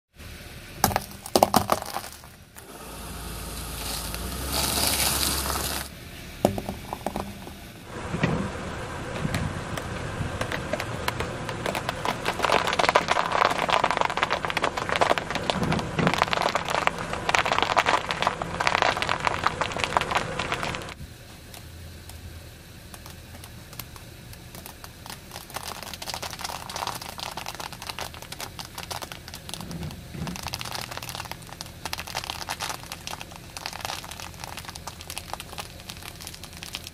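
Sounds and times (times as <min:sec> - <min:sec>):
tyre cracking hard candy: 0:00.8 - 0:02.7, 0:03.8 - 0:05.9, 0:10.4 - 0:21.0, 0:22.9 - 0:36.9
dry spaghetti snapping: 0:22.9 - 0:36.9.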